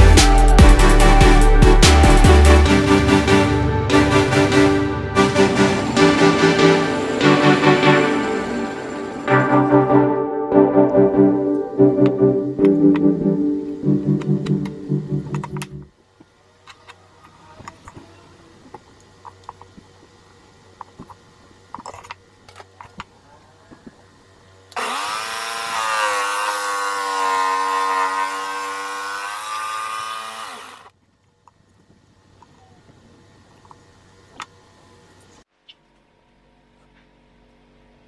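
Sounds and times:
jigsaw cutting wood: 24.8s - 30.9s.

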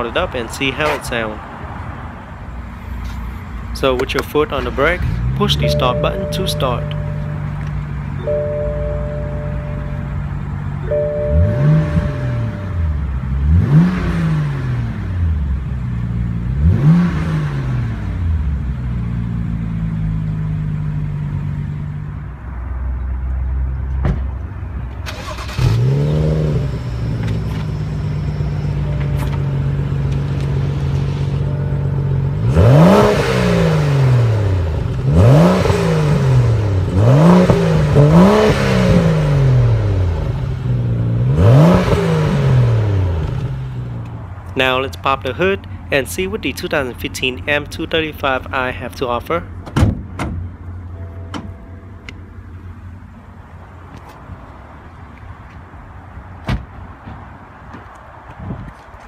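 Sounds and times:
car engine idling: 4.8s - 13.6s
car engine revving: 4.8s - 22.1s, 25.1s - 44.4s.

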